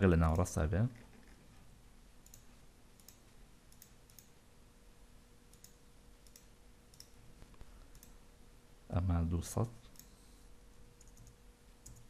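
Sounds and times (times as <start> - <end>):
low steady hum: 0.0 - 12.0
faint computer mouse clicks: 2.2 - 4.4, 5.5 - 8.2, 9.8 - 10.2, 11.0 - 12.0.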